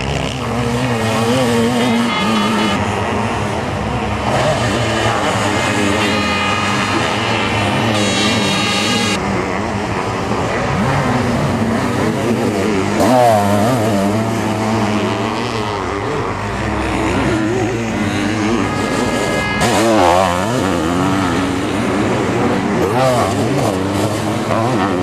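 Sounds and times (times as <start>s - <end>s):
motorcycle engines revving: 0.0s - 25.0s.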